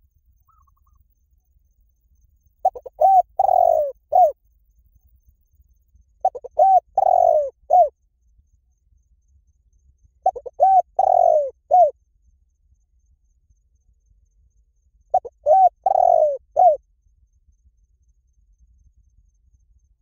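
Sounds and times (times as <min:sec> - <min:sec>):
dove cooing: 0:02.6 - 0:04.4, 0:06.2 - 0:07.9, 0:10.2 - 0:11.9, 0:15.1 - 0:16.8.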